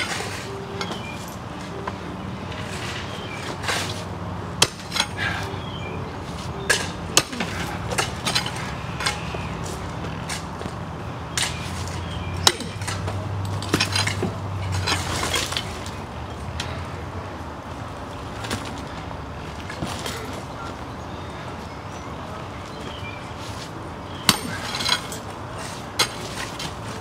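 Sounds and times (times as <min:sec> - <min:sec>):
pickaxe striking concrete: 0:04.6 - 0:05.1, 0:06.7 - 0:09.5, 0:11.3 - 0:11.7, 0:12.4 - 0:15.5, 0:24.2 - 0:25.2.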